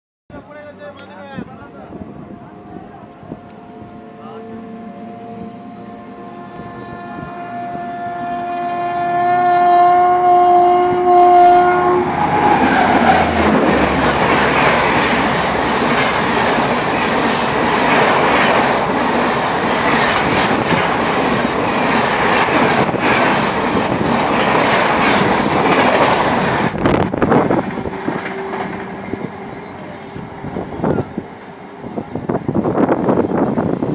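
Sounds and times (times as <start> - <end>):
air rush of passing train: 0.3 - 33.9
locomotive horn blast: 1.9 - 13.9
train wheel clatter: 12.4 - 33.9.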